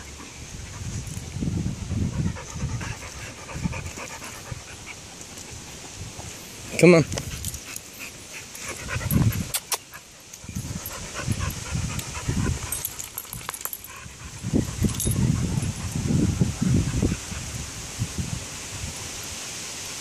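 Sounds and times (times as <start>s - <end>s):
dogs panting and scuffling: 0.0s - 17.8s
collar tags jingling: 6.7s - 16.1s.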